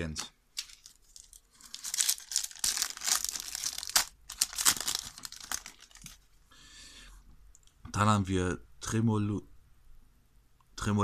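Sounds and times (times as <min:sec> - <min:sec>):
foil wrapper tearing and crinkling: 0:00.6 - 0:06.2.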